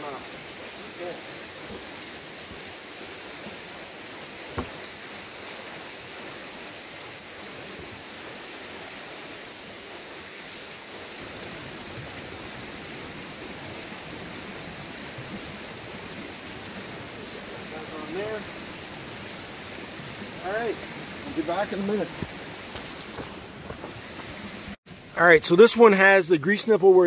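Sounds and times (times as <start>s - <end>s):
sharp knock: 4.5s - 4.8s.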